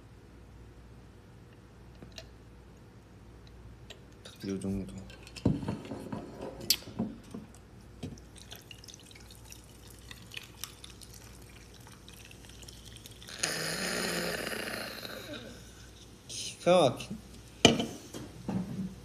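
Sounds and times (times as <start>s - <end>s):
fizzy drink pouring into glass: 8.2s - 14.2s.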